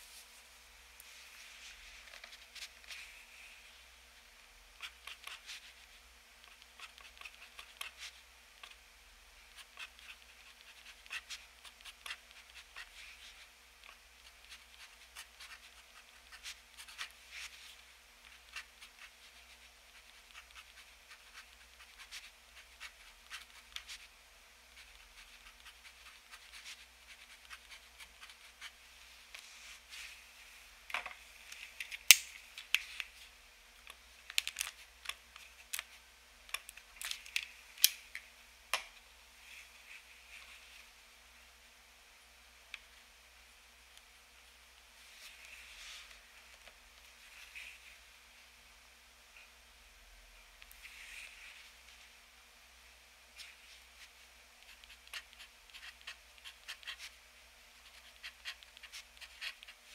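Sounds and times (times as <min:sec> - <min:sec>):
pen nib scratching on paper: 0:04.8 - 0:05.8, 0:06.4 - 0:08.8, 0:09.5 - 0:17.6, 0:18.2 - 0:24.1, 0:24.7 - 0:28.8, 0:54.6 - 0:57.1, 0:57.8 - 0:59.8.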